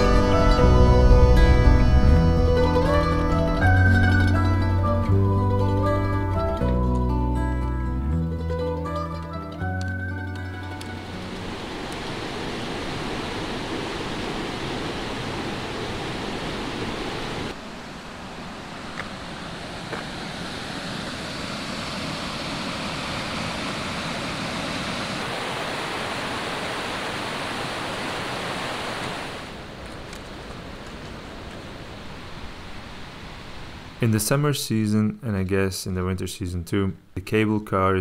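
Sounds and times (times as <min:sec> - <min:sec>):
stream rushing over rocks: 0:10.8 - 0:17.6, 0:18.5 - 0:29.8.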